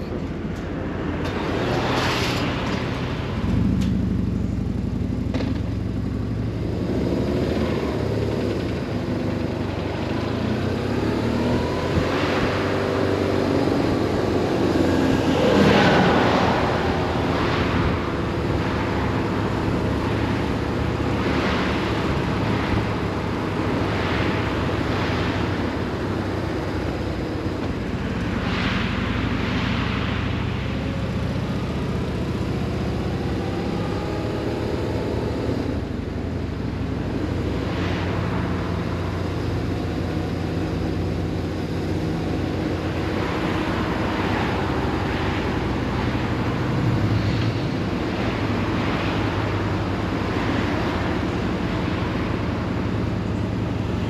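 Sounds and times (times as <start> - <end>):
wind noise: 10.0 - 36.1
wind whooshes: 11.4 - 26.2.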